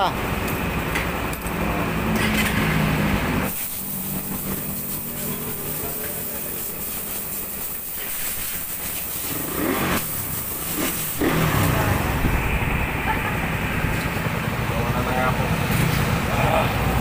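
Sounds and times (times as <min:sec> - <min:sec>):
motorcycle engine idling and revving: 0:00.1 - 0:17.0
hiss: 0:03.5 - 0:11.8.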